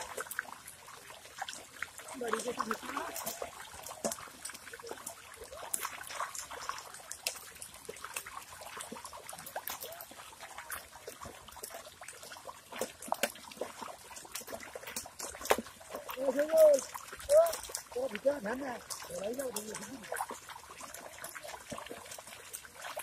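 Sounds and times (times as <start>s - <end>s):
mud squelching by hand: 0.0s - 23.0s
water dripping and trickling: 0.0s - 23.0s.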